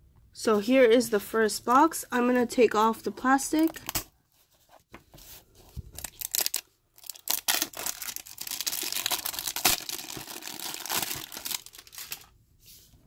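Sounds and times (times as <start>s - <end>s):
plastic wrap crinkling: 5.8s - 12.4s.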